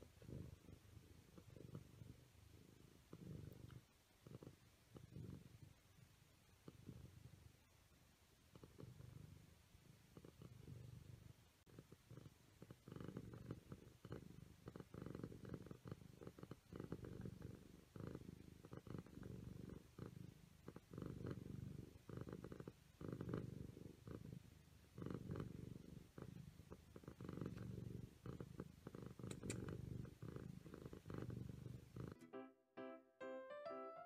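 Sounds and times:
cat purring: 0:00.0 - 0:32.2.

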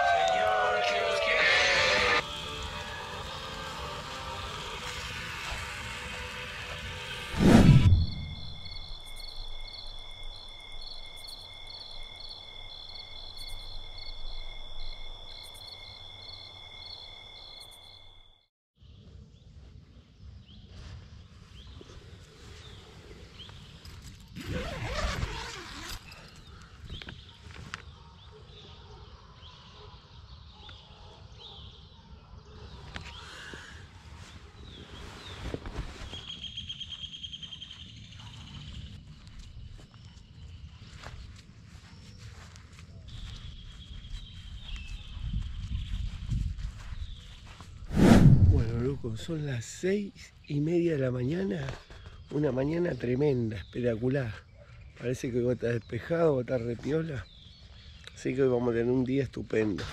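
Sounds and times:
insects pulsing calls: 0:00.0 - 0:18.4
insect steady high trill: 0:00.0 - 0:18.5, 0:47.9 - 0:50.0
low rumble: 0:07.3 - 0:09.0, 0:47.9 - 0:49.4.

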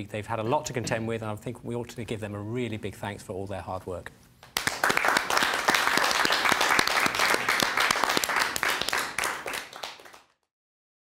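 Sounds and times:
people clapping: 0:04.4 - 0:10.5.

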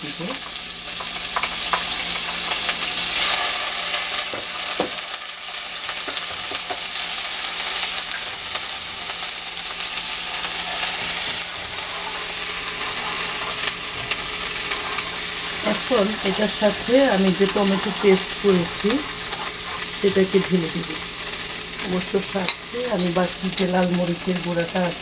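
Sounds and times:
paste sizzling in butter: 0:00.1 - 0:25.0
wooden spoon stirring: 0:10.7 - 0:20.0.

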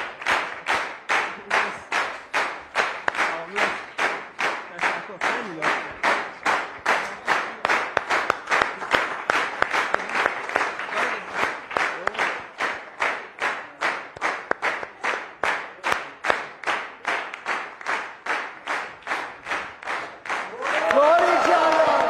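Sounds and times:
audience clapping in unison: 0:00.0 - 0:22.0.

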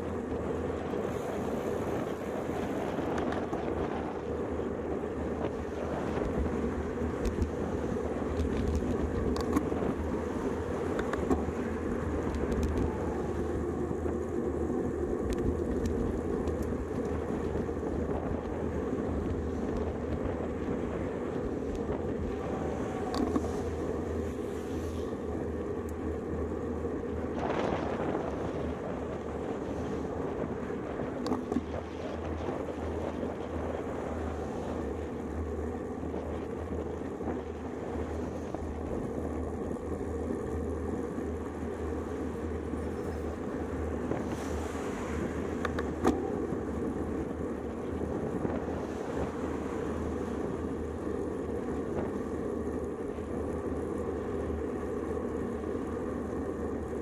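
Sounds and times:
bicycle tyre road noise: 0:00.0 - 0:57.0
wind rush on microphone: 0:00.0 - 0:57.0.

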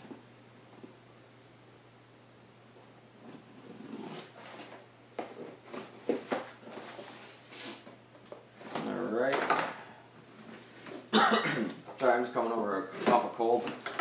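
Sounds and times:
cardboard flaps rustling: 0:03.8 - 0:07.6.

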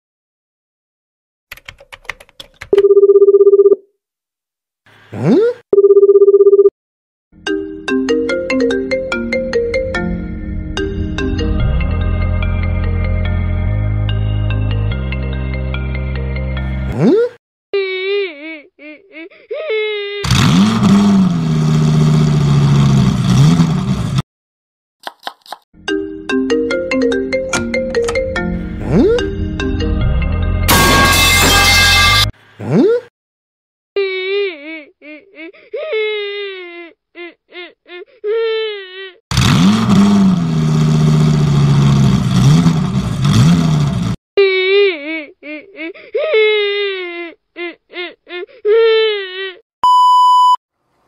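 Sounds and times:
buzzing telephone ring tone: 0:02.8 - 0:03.8, 0:05.8 - 0:06.7
marimba ringtone melody: 0:07.4 - 0:11.6, 0:25.8 - 0:30.0
engine revving: 0:20.2 - 0:24.2, 0:39.3 - 0:44.2.

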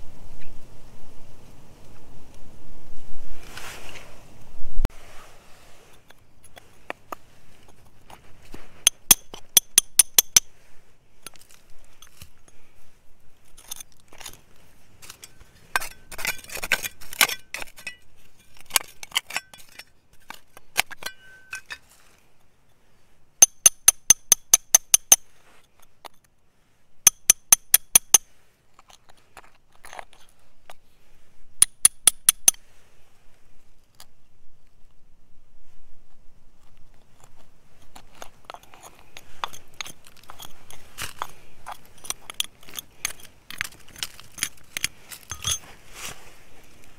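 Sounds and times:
trowel scraping gravelly soil: 0:04.9 - 0:23.7, 0:36.7 - 0:46.9
hand tools clinking on stones: 0:08.8 - 0:10.5, 0:13.5 - 0:14.4, 0:15.0 - 0:21.9, 0:23.4 - 0:25.3, 0:27.1 - 0:30.4, 0:37.8 - 0:45.8.

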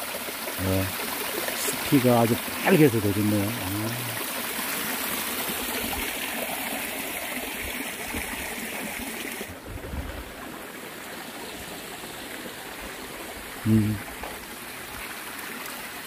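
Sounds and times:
water splashing over rocks: 0:00.0 - 0:16.0.

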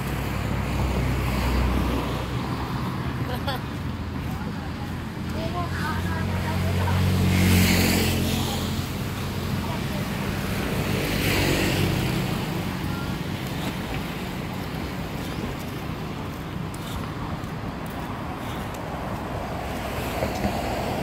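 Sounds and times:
road traffic: 0:00.0 - 0:21.0.

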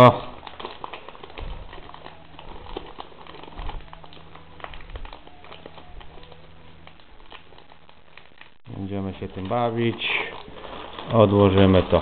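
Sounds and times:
low steady hum: 0:00.0 - 0:12.0
plastic bag crinkling: 0:00.0 - 0:12.0
handling noise: 0:00.4 - 0:08.6.

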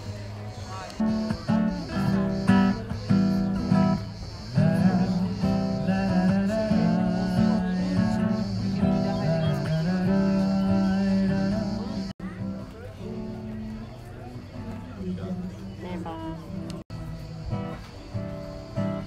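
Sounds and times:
acoustic guitar strummed chords: 0:00.0 - 0:19.0
person singing: 0:04.5 - 0:12.1.

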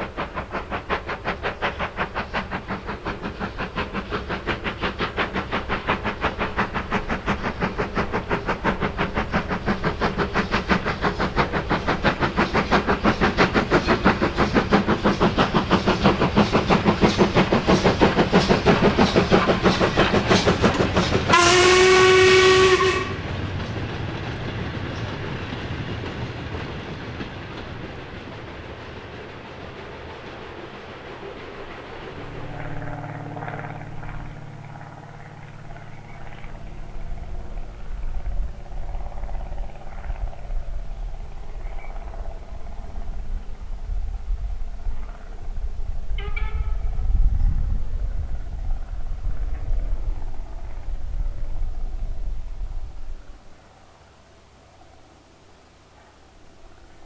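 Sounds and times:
rumble of passing wagons: 0:00.0 - 0:57.0
steam locomotive chuffing: 0:00.0 - 0:57.0
steam whistle blast: 0:21.3 - 0:23.2, 0:46.2 - 0:47.1.

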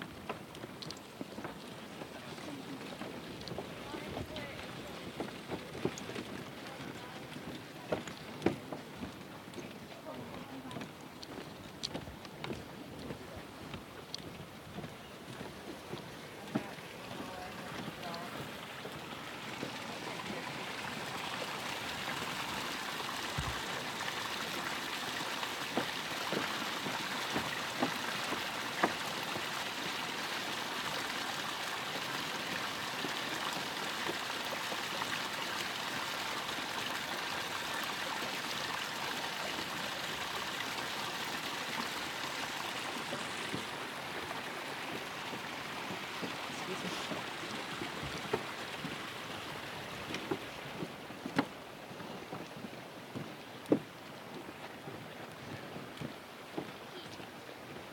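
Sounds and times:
water hissing and trickling: 0:10.6 - 0:52.3.

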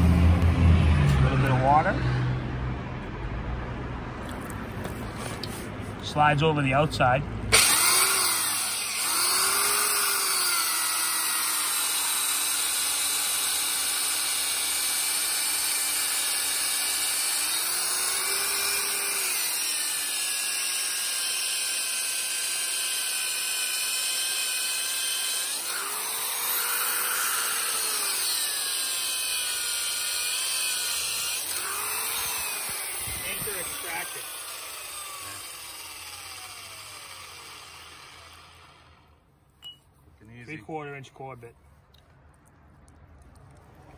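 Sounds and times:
core drill grinding concrete: 0:07.5 - 0:39.2.

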